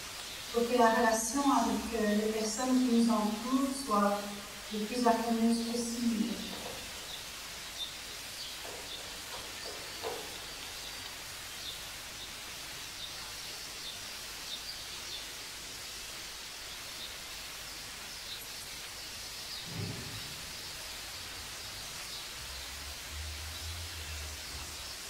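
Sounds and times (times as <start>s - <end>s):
tape hiss: 0.0s - 25.0s
low thump: 19.6s - 20.5s.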